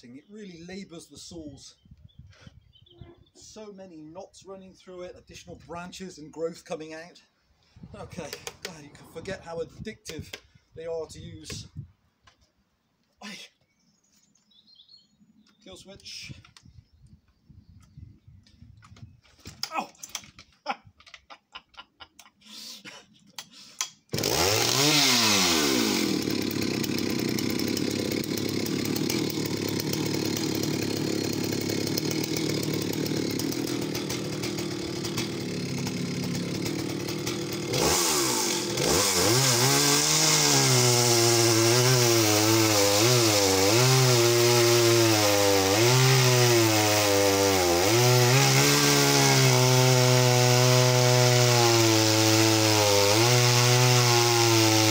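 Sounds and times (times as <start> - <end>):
chainsaw cutting log: 7.9 - 10.5, 23.8 - 54.9
chainsaw pull-start: 8.1 - 9.3, 19.3 - 20.5, 23.4 - 54.9.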